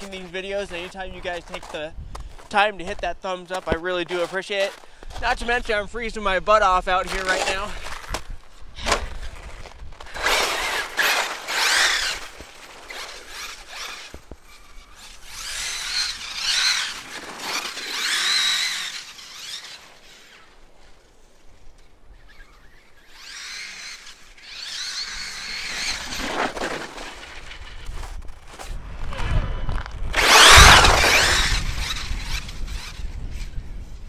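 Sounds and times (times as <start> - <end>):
electric motor whining in bursts: 8.8 - 20.6, 22.4 - 26.2, 30.1 - 33.1.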